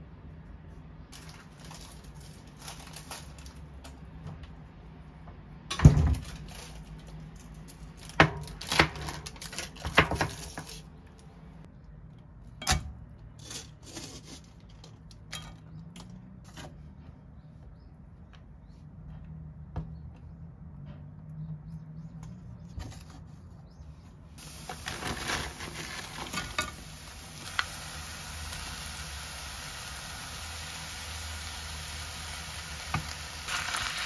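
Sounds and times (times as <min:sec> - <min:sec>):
plastic bag crinkling: 0:01.2 - 0:03.8, 0:24.4 - 0:26.7.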